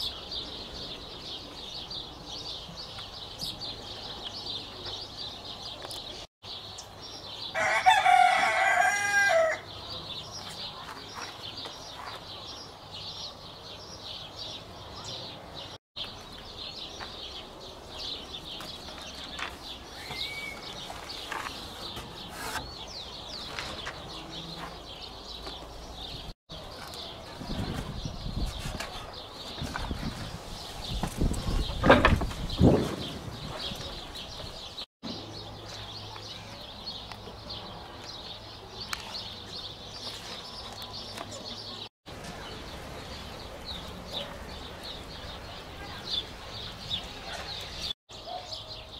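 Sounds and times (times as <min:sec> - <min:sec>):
small birds chirping: 0:00.0 - 0:07.8, 0:08.4 - 0:48.9
rooster crowing: 0:07.5 - 0:09.6.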